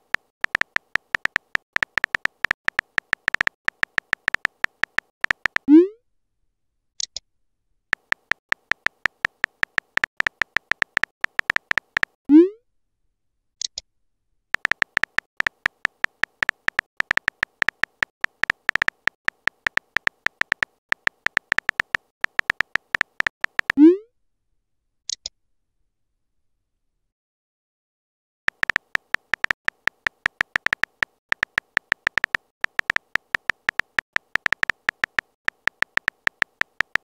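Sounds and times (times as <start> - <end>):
phone keyboard typing clicks: 0.0 - 5.7, 7.9 - 12.2, 14.6 - 23.8, 28.5 - 37.0.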